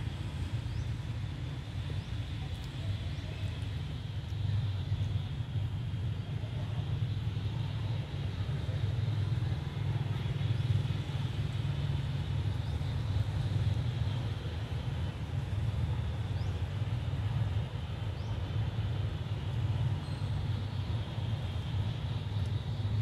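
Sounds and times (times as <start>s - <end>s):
low outdoor rumble: 0.0s - 23.0s.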